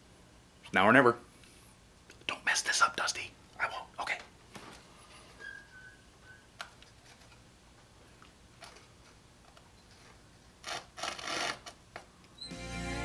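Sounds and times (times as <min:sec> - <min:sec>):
music: 0:12.4 - 0:13.0.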